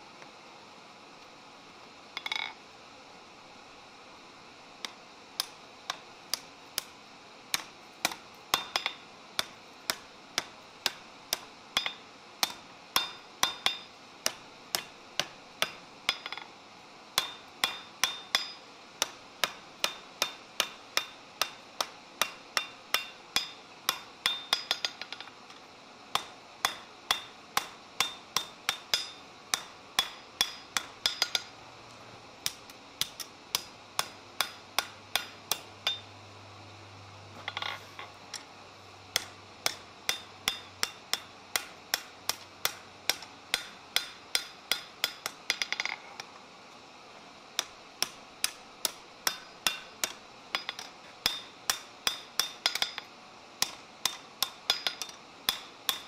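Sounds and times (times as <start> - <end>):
hammer ringing on anvil: 22.2 - 25.2, 26.2 - 31.5, 33.6 - 36.1, 50.6 - 53.0.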